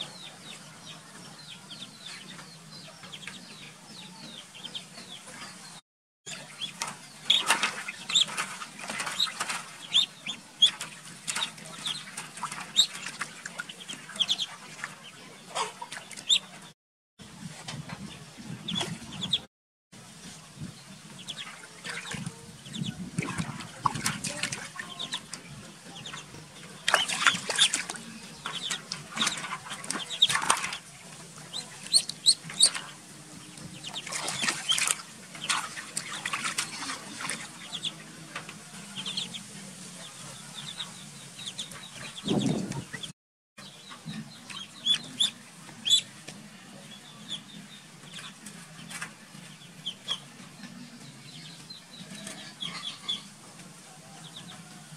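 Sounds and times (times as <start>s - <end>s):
ducklings peeping: 0.0s - 16.7s, 17.4s - 19.5s, 20.2s - 54.8s
water splashing in metal basin: 6.3s - 16.7s, 21.2s - 32.9s, 33.7s - 39.4s.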